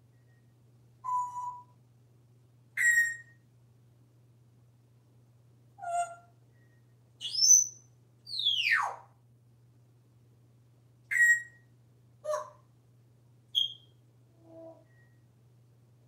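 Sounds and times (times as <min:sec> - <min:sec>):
parrot whistling and chirping: 0:01.0 - 0:01.7, 0:02.8 - 0:03.4, 0:05.8 - 0:06.2, 0:07.2 - 0:09.1, 0:11.1 - 0:11.6, 0:13.6 - 0:13.9.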